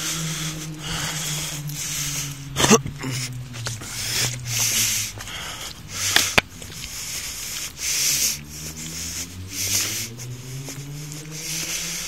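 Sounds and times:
person breathing heavily: 0:00.0 - 0:12.0.

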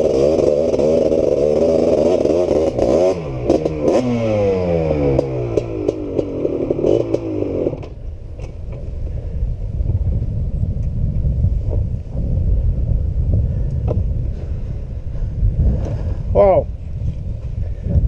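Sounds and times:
two-stroke engine running: 0:00.0 - 0:08.0
low rumbling noise: 0:00.0 - 0:18.0.

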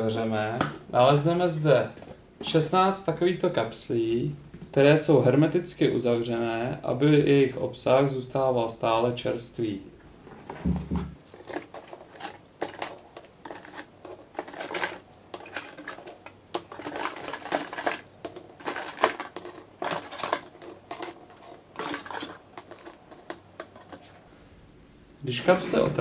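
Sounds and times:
cardboard box rustling: 0:10.3 - 0:24.2.

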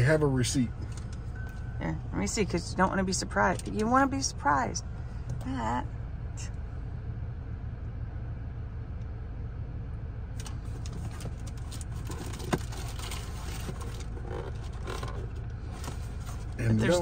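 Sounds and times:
car engine idling: 0:00.0 - 0:17.0
paper and cardboard rustling: 0:10.8 - 0:17.0.

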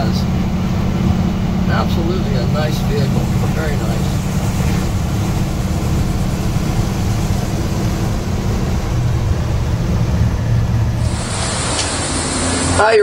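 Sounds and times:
road noise: 0:00.0 - 0:13.0
truck engine droning: 0:00.0 - 0:13.0.

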